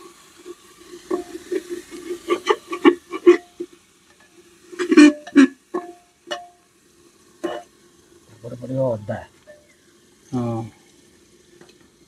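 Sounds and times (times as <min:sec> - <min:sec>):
metal spatula scraping pot: 0:01.0 - 0:03.7, 0:04.8 - 0:06.5, 0:07.4 - 0:07.7.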